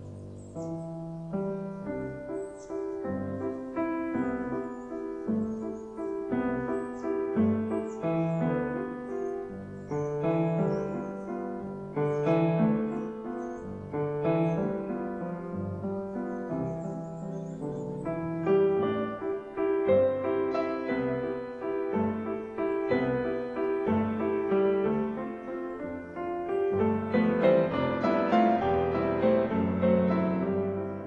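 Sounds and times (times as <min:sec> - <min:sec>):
piano chords and notes: 0:00.0 - 0:31.0.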